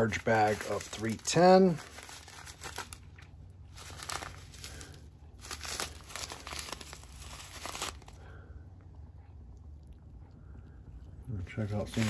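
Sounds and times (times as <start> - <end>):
plastic bag crinkling: 0.0 - 8.4, 11.7 - 12.0.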